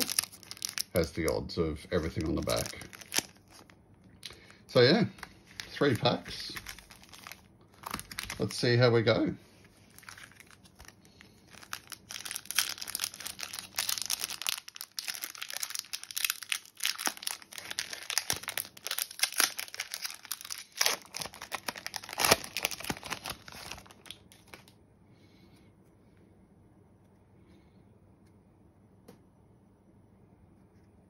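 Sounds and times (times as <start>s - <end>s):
foil wrapper crinkling and tearing: 0.0s - 8.8s, 9.8s - 24.8s.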